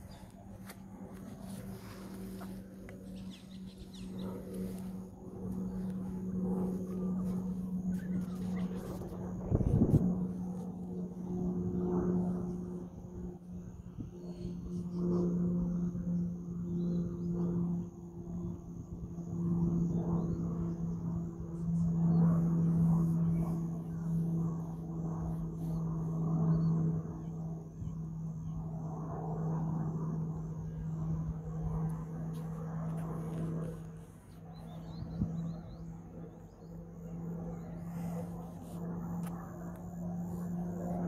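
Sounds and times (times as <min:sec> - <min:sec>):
aircraft droning: 0:00.0 - 0:41.0.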